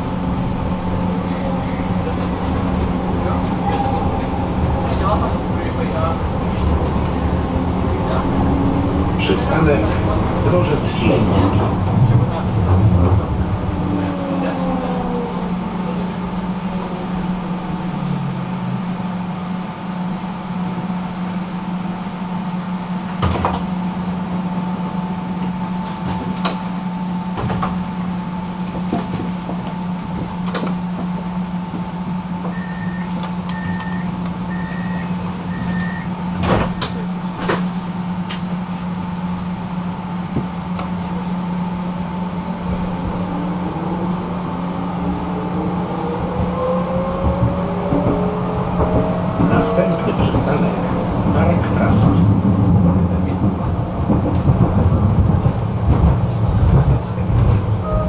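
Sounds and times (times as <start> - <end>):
tram electric hum and rolling: 0.0 - 58.0
high beeps: 32.6 - 36.1.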